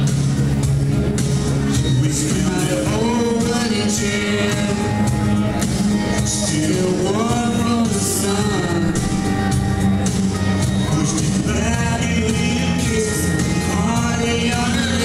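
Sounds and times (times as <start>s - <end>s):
backing music with bass and cymbals: 0.0s - 15.0s
boy singing into microphone: 1.8s - 5.2s, 6.2s - 9.6s, 10.8s - 15.0s.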